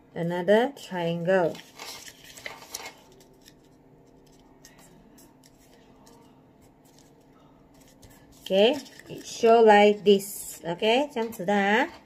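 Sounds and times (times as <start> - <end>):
paper rustling and creasing: 1.4 - 10.6.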